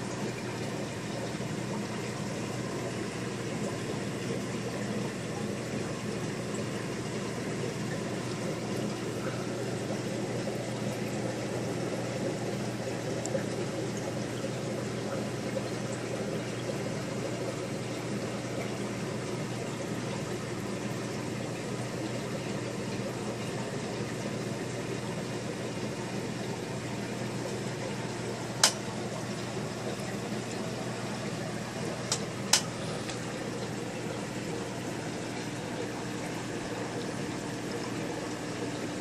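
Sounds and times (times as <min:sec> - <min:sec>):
aquarium filter running: 0:00.0 - 0:39.0
sharp click: 0:28.6 - 0:28.8, 0:32.1 - 0:32.7.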